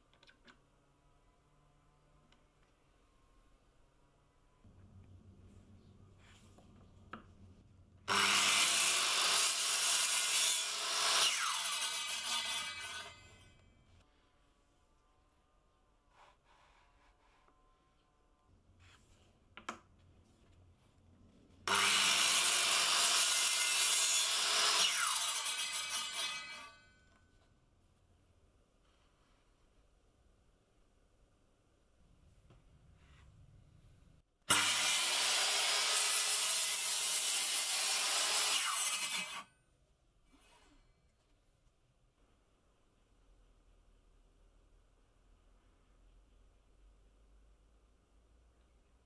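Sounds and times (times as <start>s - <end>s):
circular saw cutting wood: 8.1s - 13.4s, 21.7s - 26.8s, 34.5s - 39.5s.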